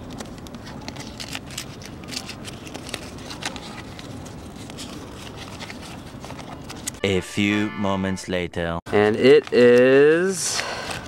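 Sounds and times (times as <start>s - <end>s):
paper crinkling and rustling: 0.0s - 7.0s, 9.0s - 11.0s
low background noise: 0.0s - 11.0s.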